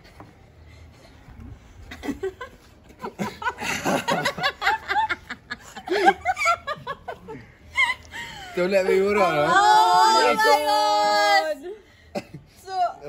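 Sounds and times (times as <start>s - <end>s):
group of people laughing: 1.8s - 9.2s.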